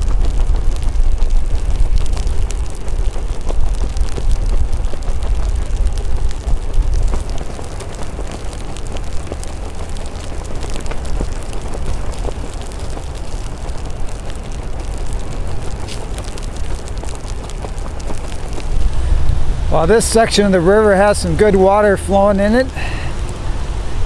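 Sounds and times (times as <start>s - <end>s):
rain hiss: 0.0s - 24.0s
raindrops ticking on microphone: 0.0s - 24.0s
wind rumbling over microphone: 0.0s - 24.0s.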